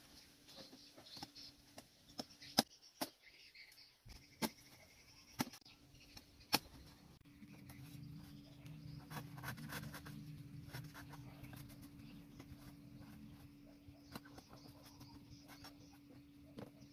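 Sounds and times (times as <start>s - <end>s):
knife scraping bamboo: 7.6s - 13.4s.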